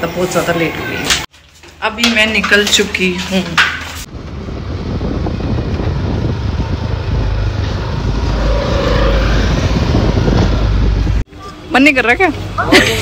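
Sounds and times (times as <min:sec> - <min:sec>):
motorbike engine and road noise: 0:02.0 - 0:13.0
wind rumble on microphone: 0:04.0 - 0:11.3.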